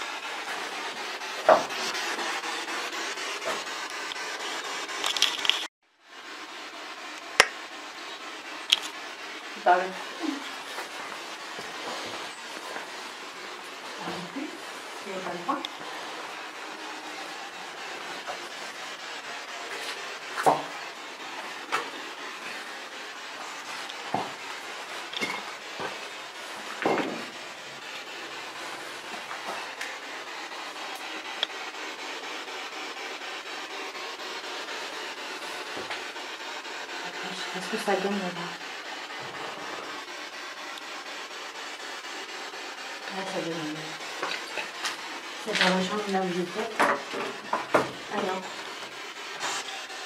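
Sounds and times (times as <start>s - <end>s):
steady hiss: 0.0s - 50.0s
footsteps on gritty floor: 10.4s - 16.3s, 19.6s - 30.0s, 44.1s - 48.6s.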